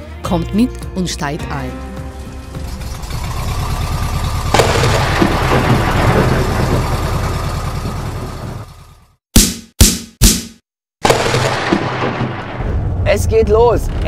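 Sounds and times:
van engine rumbling: 0.3 - 9.2
loud sudden boom: 4.4 - 7.6, 11.0 - 13.3.

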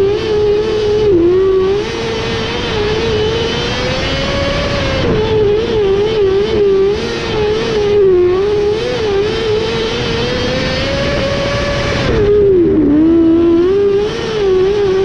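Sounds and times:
race car engine at high revs: 0.0 - 15.0.

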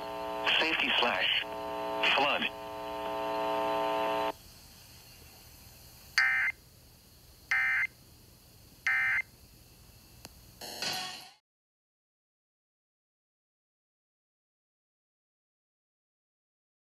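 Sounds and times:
steady buzzing tone: 0.0 - 4.3.

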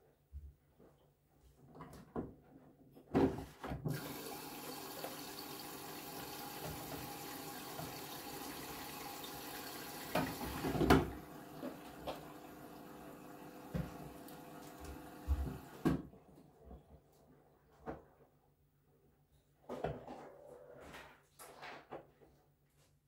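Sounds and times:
water rushing into washing machine: 3.8 - 16.0
washing machine knocks: 10.0 - 12.3.

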